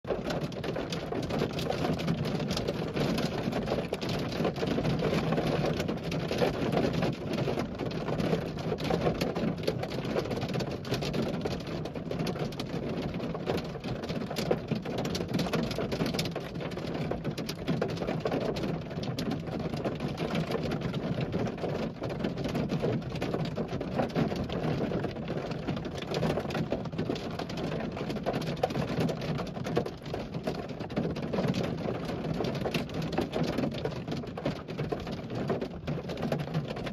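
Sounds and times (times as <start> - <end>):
heavy rain of large raindrops: 0.1 - 36.9.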